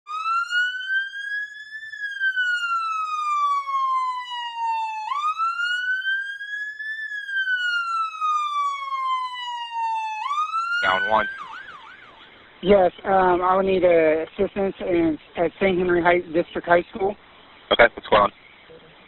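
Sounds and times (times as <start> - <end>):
ambulance siren wailing: 0.1 - 12.6.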